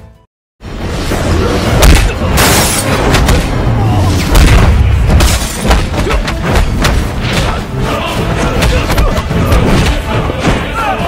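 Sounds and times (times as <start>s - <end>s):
dramatic music score: 0.6s - 11.0s
booming hits and crashes: 0.7s - 7.7s.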